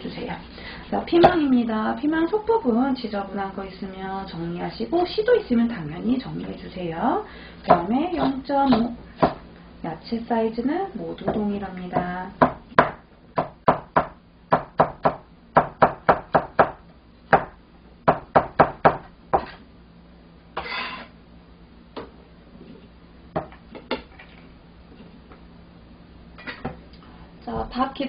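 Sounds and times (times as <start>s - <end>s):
knife chopping on cutting board: 7.7s - 9.4s
knife scraping cutting board: 20.6s - 21.2s.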